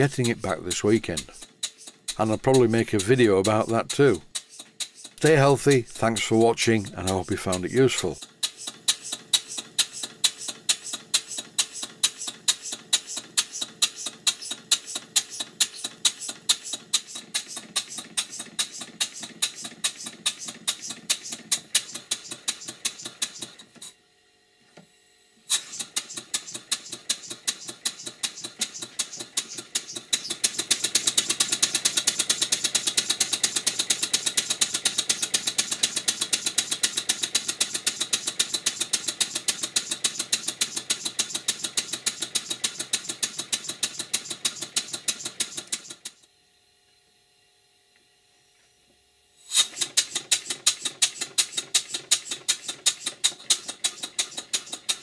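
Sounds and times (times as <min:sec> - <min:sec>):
model steam engine beat: 0:00.0 - 0:23.6, 0:25.5 - 0:46.2, 0:49.5 - 0:55.0.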